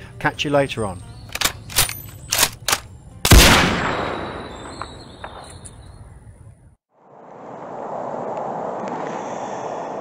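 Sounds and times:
gunshots echoing: 3.3 - 5.6.

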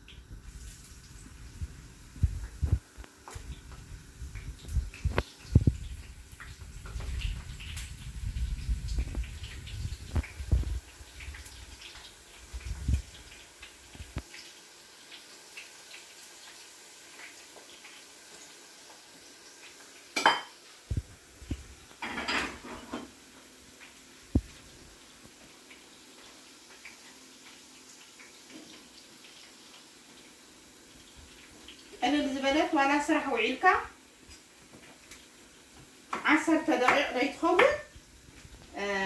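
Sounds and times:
dishes clattering: 20.2 - 20.6, 22.0 - 23.2.

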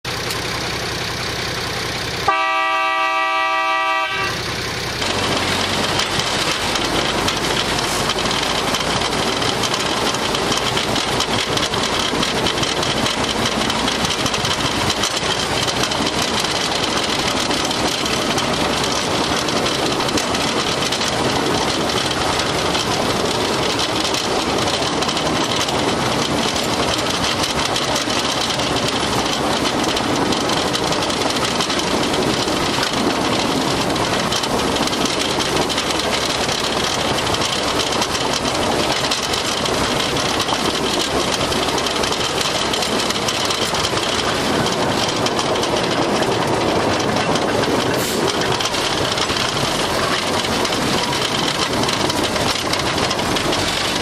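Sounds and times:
rail car engine running on track: 0.0 - 54.0
rail car horn: 2.2 - 4.6.

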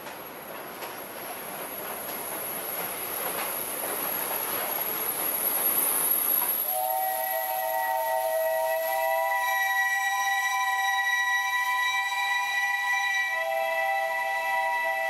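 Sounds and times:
train wheels on rails: 0.0 - 15.0.

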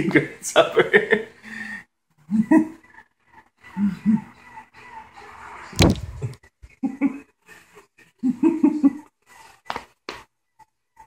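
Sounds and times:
sharp knock: 5.8 - 6.4.

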